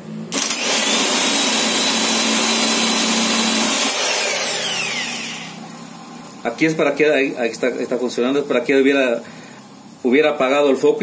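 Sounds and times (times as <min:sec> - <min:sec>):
power drill whining: 0:00.3 - 0:05.7.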